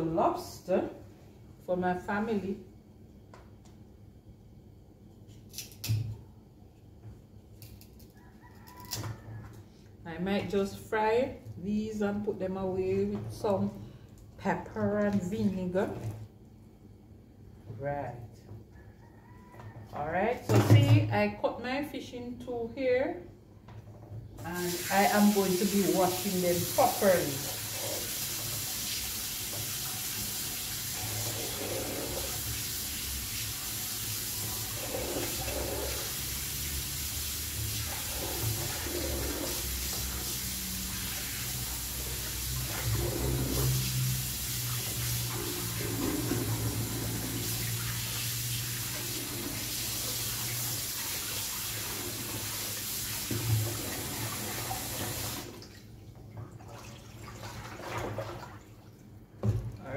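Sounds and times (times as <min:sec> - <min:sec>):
tap water running into sink: 0:24.4 - 0:58.6.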